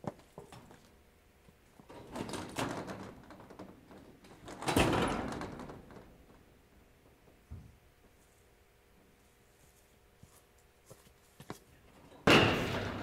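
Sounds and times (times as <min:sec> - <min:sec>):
steel door being worked: 0:01.9 - 0:06.2
steel door banging shut: 0:04.4 - 0:06.1, 0:12.1 - 0:13.0.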